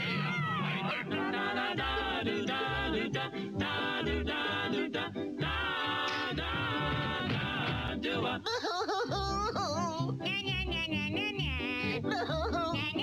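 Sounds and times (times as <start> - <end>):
voices singing in close harmony: 0.0 - 8.8.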